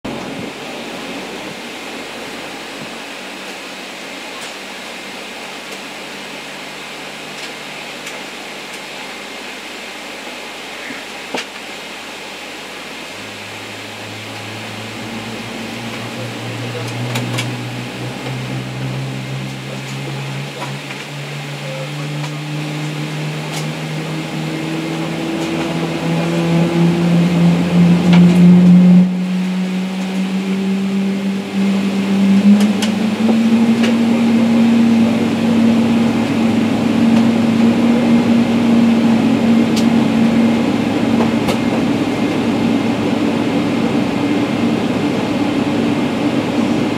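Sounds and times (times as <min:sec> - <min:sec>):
jet engine spooling up: 0:12.0 - 0:46.9.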